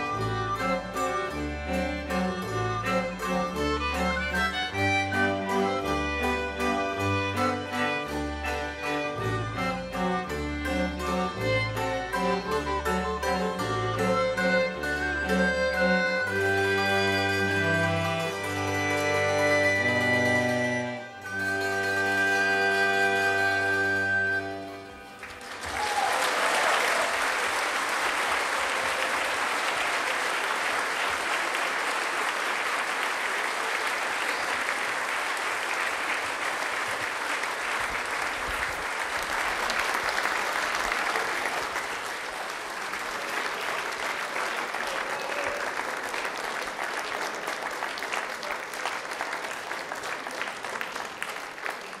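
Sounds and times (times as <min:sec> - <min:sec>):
audience applauding: 0:25.0 - 0:52.0.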